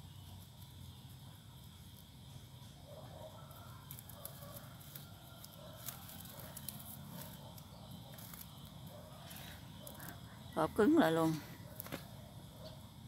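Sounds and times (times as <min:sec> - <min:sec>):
cord rustling: 0:03.5 - 0:10.2.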